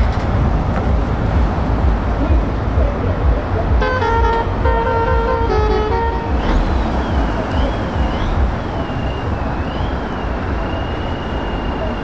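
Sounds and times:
diesel trucks rumbling: 0:00.0 - 0:12.0
musical truck horn: 0:03.7 - 0:06.8
high wavering whistle-like tone: 0:06.2 - 0:12.0.

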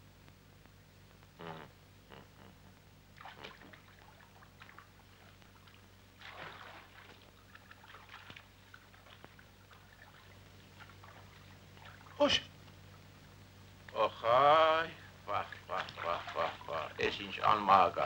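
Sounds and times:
low steady hum: 0:00.0 - 0:18.0
faint water splashes: 0:03.1 - 0:14.0, 0:15.3 - 0:17.5.

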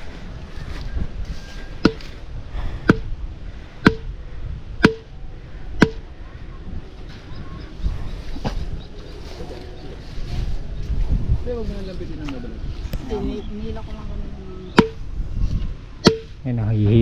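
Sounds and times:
hammer striking stake: 0:01.8 - 0:02.2, 0:02.8 - 0:03.1, 0:03.8 - 0:04.1, 0:04.8 - 0:05.1, 0:05.8 - 0:06.0, 0:14.8 - 0:15.0, 0:16.0 - 0:16.4.

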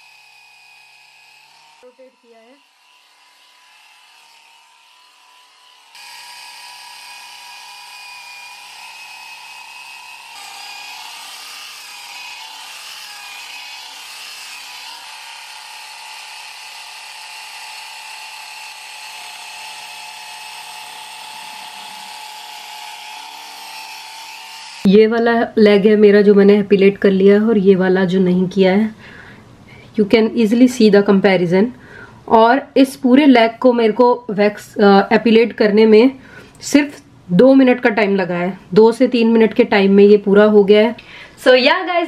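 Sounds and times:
epilator motor whine: 0:00.0 - 0:24.9.

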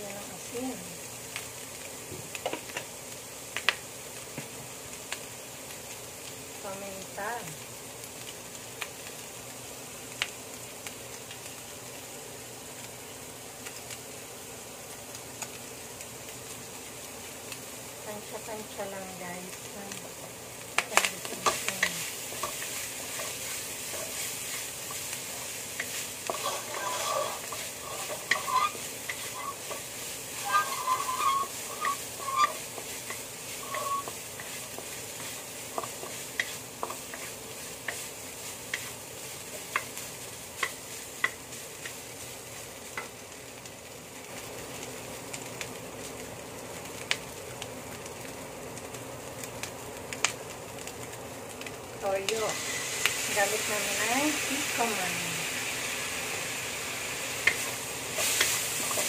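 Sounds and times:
filling sizzling in wok: 0:00.0 - 0:59.0
wooden spatula scraping pan: 0:21.4 - 0:38.1.

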